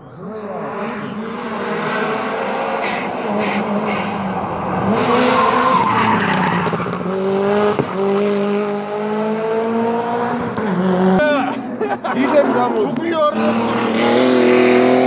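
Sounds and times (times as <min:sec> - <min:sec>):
rally car engine accelerating: 0:00.1 - 0:15.0
tyre squeal: 0:05.2 - 0:06.9.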